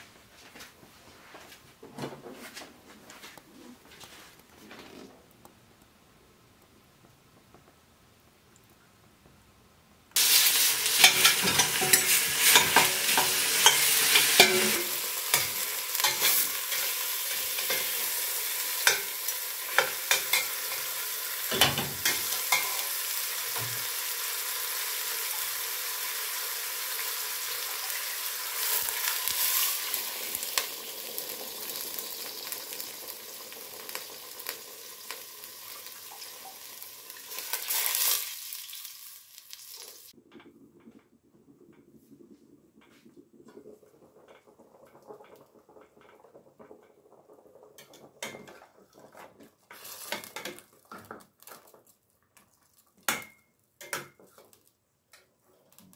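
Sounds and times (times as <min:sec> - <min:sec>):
meat sizzling in hot oil: 0:10.2 - 0:40.2
metal spatula clicking and scraping: 0:11.0 - 0:16.9, 0:21.6 - 0:22.8.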